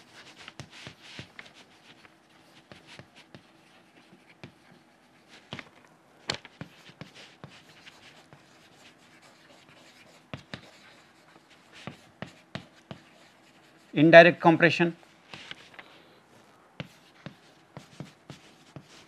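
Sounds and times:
chalk scratching on chalkboard: 0:00.1 - 0:05.6, 0:06.6 - 0:14.1, 0:16.8 - 0:19.0.

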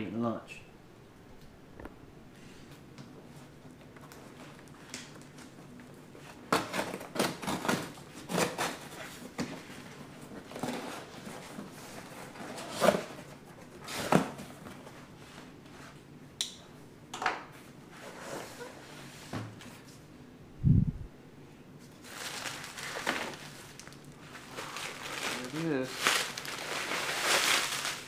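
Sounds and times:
knife slitting packing tape: 0:06.5 - 0:08.9
plastic wrapping handled: 0:21.9 - 0:28.0.

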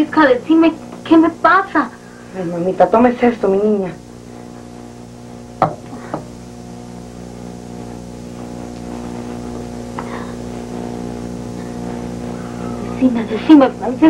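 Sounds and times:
steady low hum: 0:00.0 - 0:14.0
faint tap: 0:05.6 - 0:06.3
sharp knock: 0:05.6 - 0:06.3.

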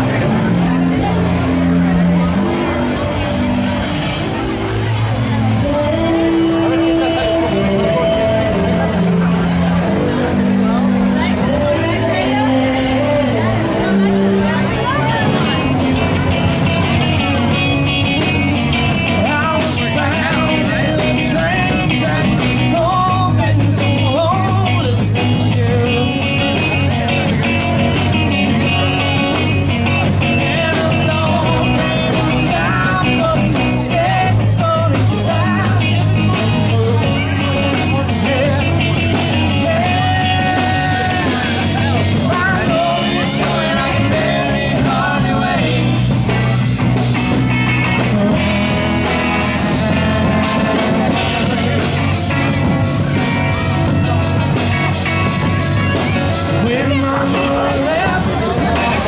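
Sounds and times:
electric and acoustic guitars: 0:00.0 - 0:59.0
upright bass: 0:00.0 - 0:59.0
man singing into microphone: 0:05.4 - 0:09.6, 0:11.2 - 0:15.5, 0:18.8 - 0:46.6, 0:47.8 - 0:52.7, 0:56.0 - 0:59.0
drum kit beat: 0:14.7 - 0:59.0.

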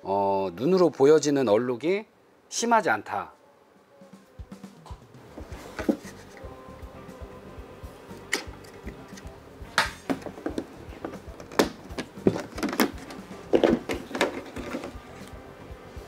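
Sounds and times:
plastic clicks and knocks: 0:09.8 - 0:14.9
plastic housing set down: 0:09.8 - 0:15.0.

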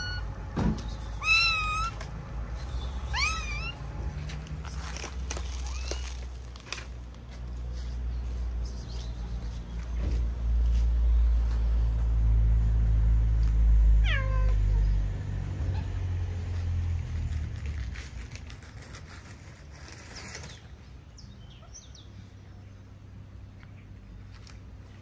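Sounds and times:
cat meowing: 0:00.0 - 0:00.3, 0:01.1 - 0:02.0, 0:03.0 - 0:03.8, 0:14.0 - 0:15.0.

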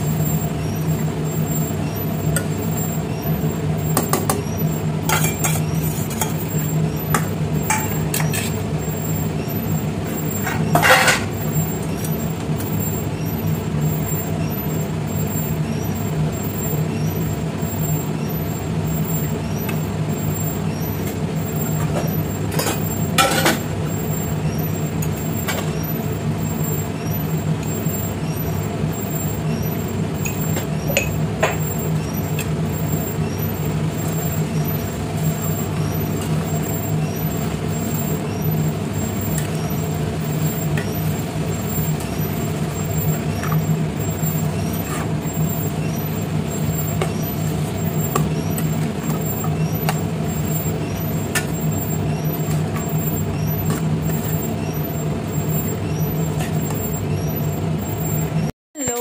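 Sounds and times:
fan or motor humming: 0:00.0 - 0:59.0
spoon and pan clinking: 0:05.1 - 0:06.4.

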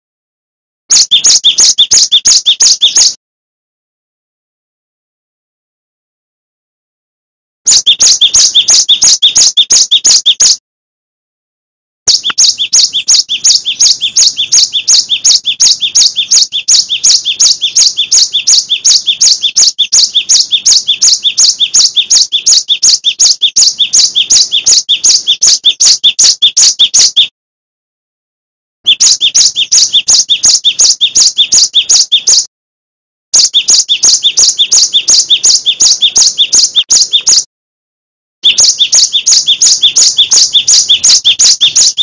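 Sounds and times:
bird chirping fast: 0:00.9 - 0:03.2, 0:07.7 - 0:10.6, 0:12.1 - 0:27.3, 0:28.9 - 0:32.5, 0:33.4 - 0:37.5, 0:38.4 - 0:42.0.

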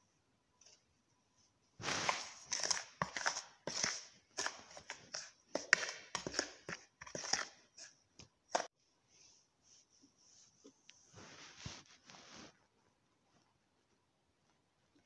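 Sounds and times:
plastic spoon scraping flour: 0:01.8 - 0:08.7.

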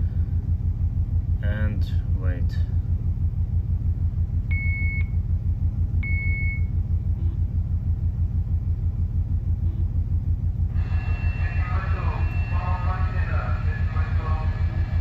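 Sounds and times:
low machinery rumble: 0:00.0 - 0:15.0
short electronic beeps: 0:04.5 - 0:05.2, 0:06.0 - 0:07.4.

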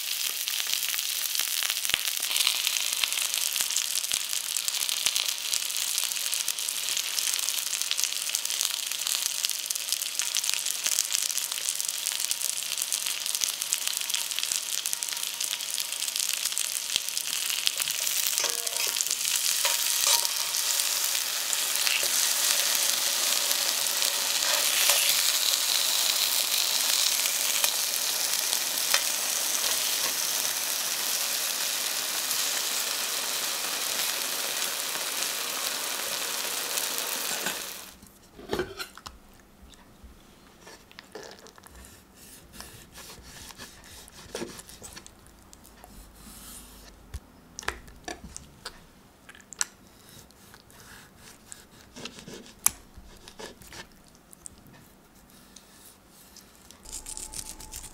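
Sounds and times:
potatoes sizzling in oil: 0:00.0 - 0:38.0, 0:56.8 - 0:57.9.

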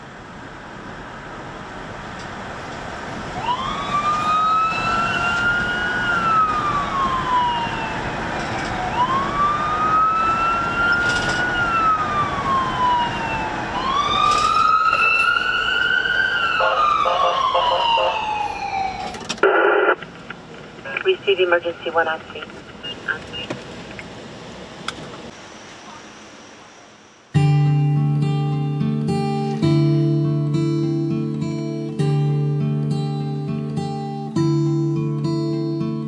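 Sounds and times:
road noise: 0:00.0 - 0:36.0
emergency siren wailing: 0:03.2 - 0:19.3.

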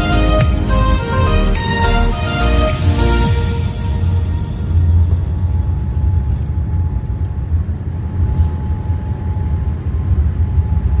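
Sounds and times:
engine and wheel rumble: 0:00.0 - 0:11.0
faint steady whine: 0:03.3 - 0:11.0.

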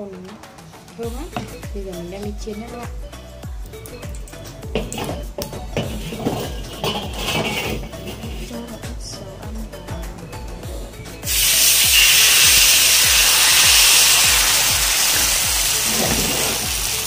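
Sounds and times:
bass beat: 0:01.0 - 0:17.0
batter sizzling in hot oil: 0:11.3 - 0:17.0.

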